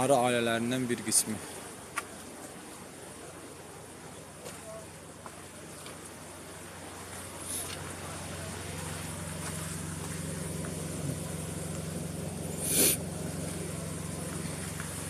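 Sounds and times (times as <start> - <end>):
bees humming: 9.2 - 15.0.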